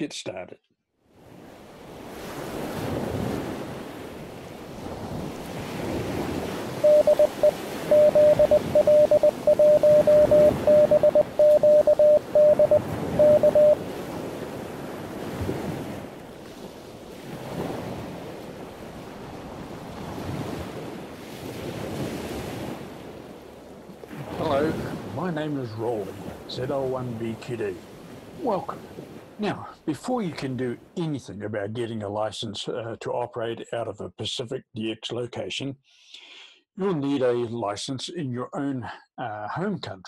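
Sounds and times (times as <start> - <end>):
surf washing on beach: 1.2 - 29.4
morse code tone: 6.8 - 13.8.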